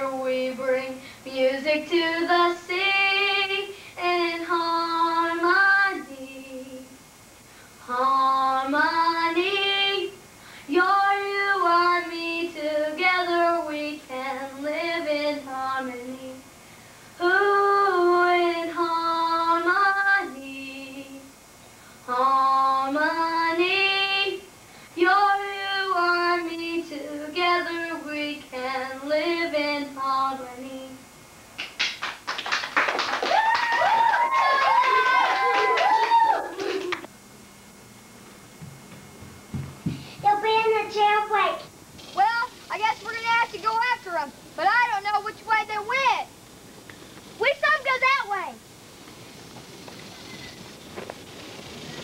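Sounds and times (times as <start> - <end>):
woman singing unaccompanied: 0.0 - 7.0, 7.8 - 16.5, 17.2 - 21.4, 22.0 - 31.0.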